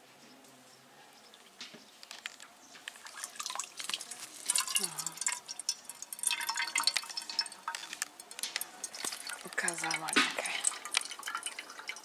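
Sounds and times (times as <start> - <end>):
water splashing into metal pot: 2.8 - 12.0.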